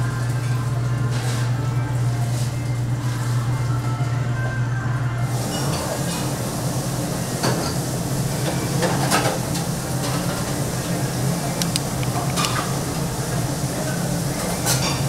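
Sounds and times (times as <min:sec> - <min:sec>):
kitchen low hum: 0:00.0 - 0:15.0
utensils and dishes clinking: 0:05.2 - 0:06.4, 0:07.4 - 0:13.1, 0:13.8 - 0:15.0.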